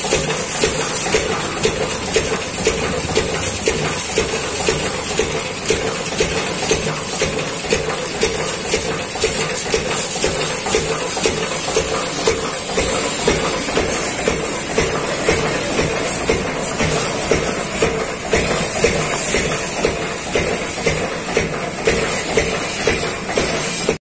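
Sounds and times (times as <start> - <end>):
stationary engine knocking: 0.0 - 24.0
water hissing: 0.0 - 24.0.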